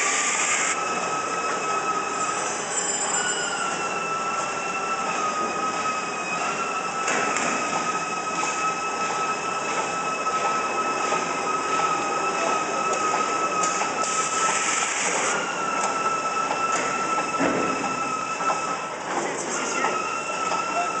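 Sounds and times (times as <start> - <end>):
machine high whine: 0.0 - 21.0
packing machine clatter: 6.4 - 21.0.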